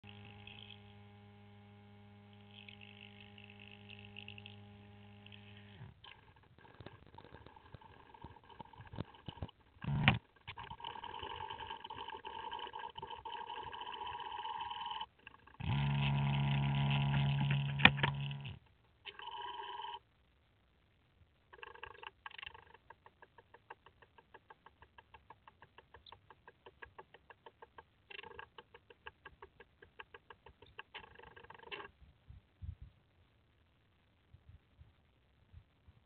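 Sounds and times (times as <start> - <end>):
camera motor hum: 0.0 - 20.0.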